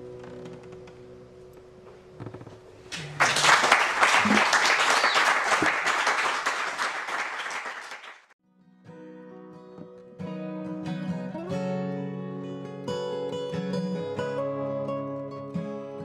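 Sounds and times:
audience applauding: 2.9s - 8.4s
acoustic guitars: 8.5s - 16.0s.

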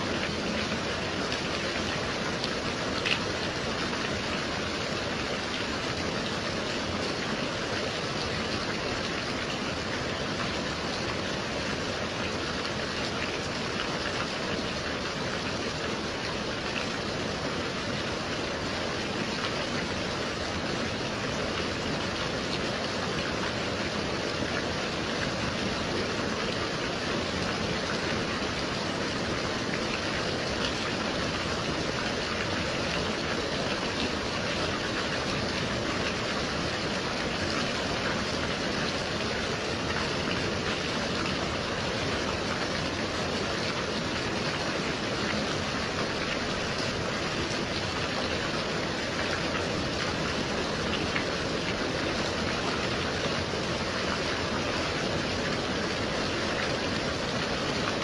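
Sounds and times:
gentle rain falling: 0.0s - 58.0s.

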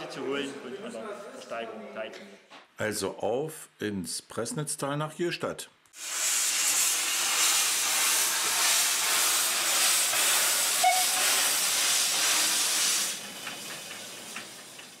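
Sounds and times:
steam locomotive hissing steam: 6.0s - 15.0s.

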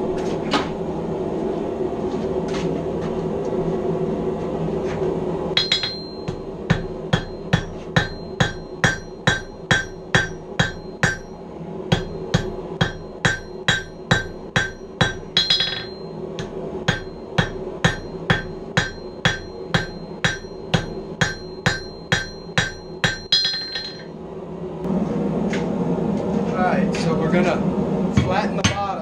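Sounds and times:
hammer striking steel on anvil: 5.6s - 24.1s, 28.2s - 29.0s.

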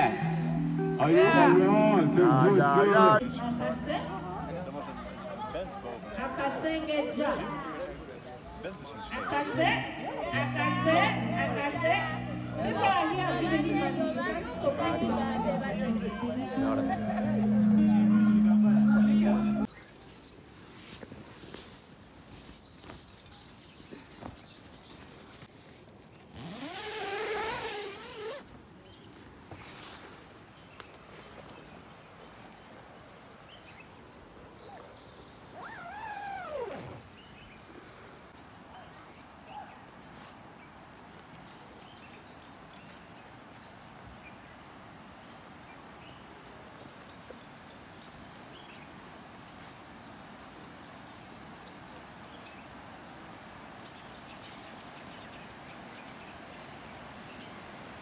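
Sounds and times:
rising and falling call: 0.0s - 6.2s, 9.5s - 19.7s, 35.6s - 37.1s
high insect drone: 0.0s - 19.7s.

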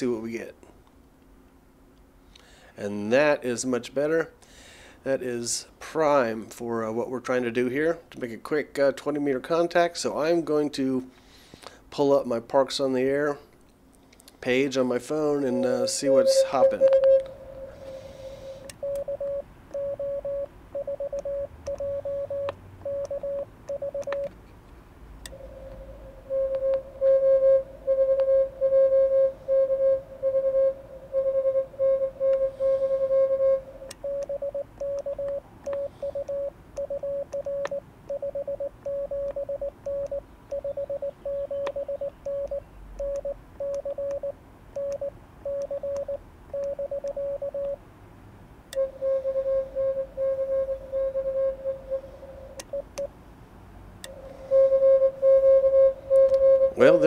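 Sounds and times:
morse code tone: 15.4s - 24.3s, 25.3s - 47.8s, 48.8s - 53.1s, 54.4s - 57.0s.

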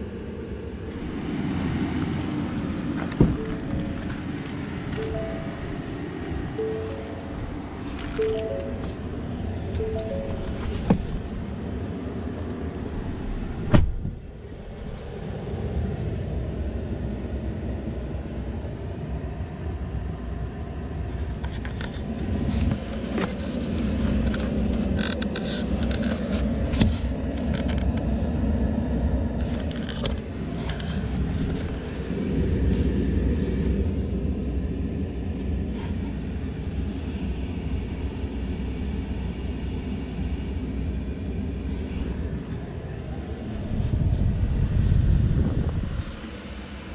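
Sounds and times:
tyre and road noise: 0.8s - 15.2s, 21.0s - 28.2s, 29.3s - 33.8s
sharp thump: 13.6s - 14.2s.

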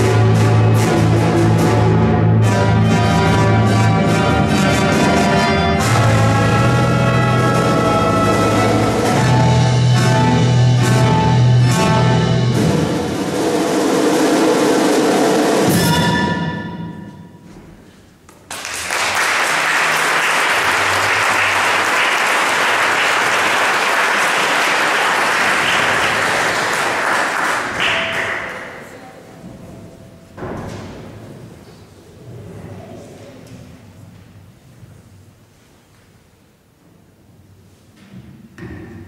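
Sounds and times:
orchestra sustained chord: 0.1s - 14.0s
audience applause: 18.5s - 28.9s.

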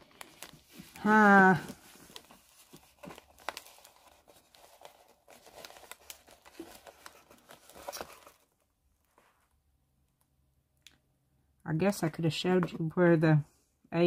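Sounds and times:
plastic crinkling: 0.0s - 8.6s.

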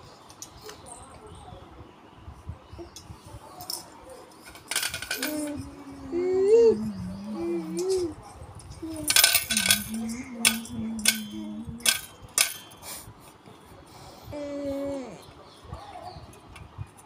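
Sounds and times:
plastic toys shifting: 4.4s - 5.9s, 6.8s - 12.8s.

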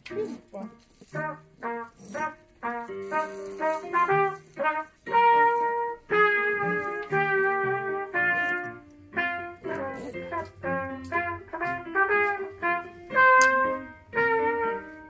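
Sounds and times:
trumpet melody: 0.2s - 15.0s.

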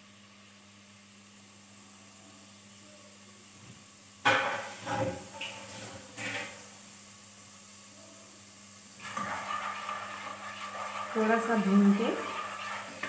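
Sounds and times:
food sizzling in hot oil: 3.4s - 13.0s
wooden spoon stirring pot: 9.0s - 13.0s.

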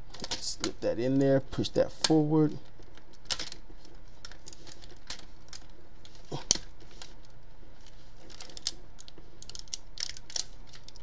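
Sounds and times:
plastic toy parts clicking: 8.3s - 11.0s.

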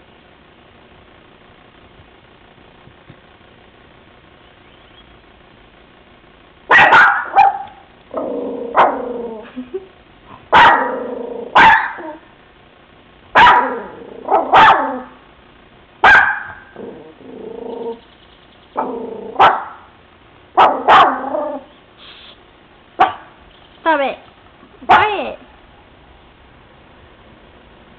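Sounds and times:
dog barking loudly: 6.7s - 7.9s, 8.7s - 9.1s, 10.5s - 12.2s, 13.3s - 15.2s, 16.0s - 16.8s, 18.8s - 19.9s, 20.6s - 21.7s, 23.0s - 23.4s, 24.9s - 25.2s.

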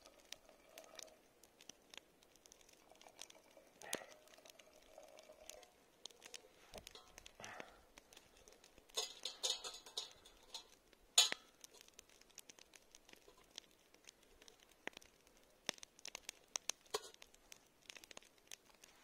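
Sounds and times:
light rustling: 6.0s - 15.0s
spoon clinking metal pot: 8.9s - 11.4s.

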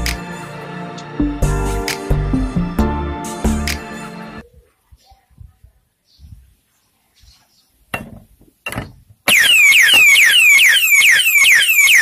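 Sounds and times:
alarm siren whooping: 9.3s - 12.0s.

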